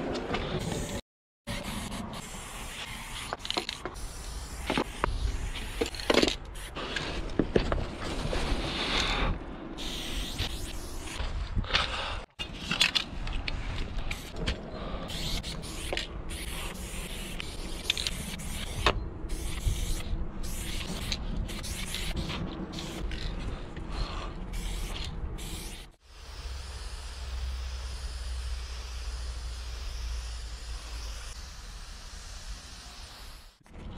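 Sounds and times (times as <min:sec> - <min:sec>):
spray paint can hissing: 0:00.6 - 0:07.0, 0:09.8 - 0:11.2, 0:13.9 - 0:14.4, 0:15.1 - 0:23.4, 0:24.5 - 0:33.6
wind buffeting microphone: 0:11.1 - 0:12.1.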